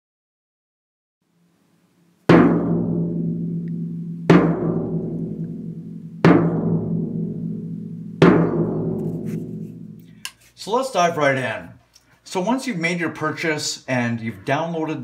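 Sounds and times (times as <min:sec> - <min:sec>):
deep drum hits ringing out: 0:02.3 - 0:09.0.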